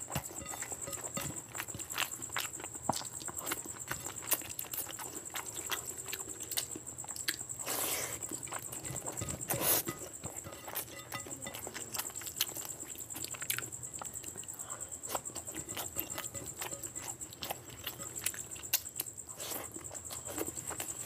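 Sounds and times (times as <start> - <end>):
faint high whine: 0.0 - 6.6
chewing and lip smacks: 0.1 - 21.0.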